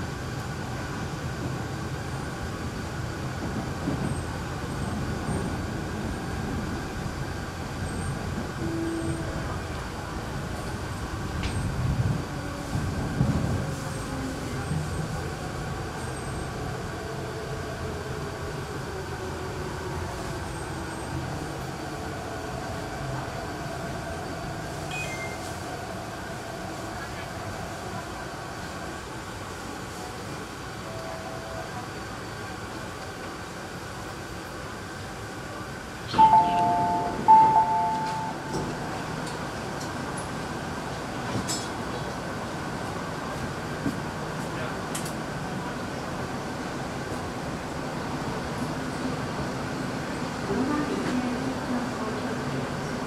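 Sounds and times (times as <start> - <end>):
two-tone electronic chime: 36.1 - 38.6.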